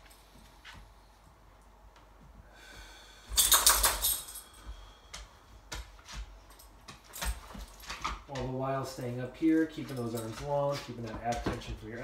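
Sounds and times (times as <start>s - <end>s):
collar tags jingling: 3.4s - 4.7s, 6.4s - 12.0s.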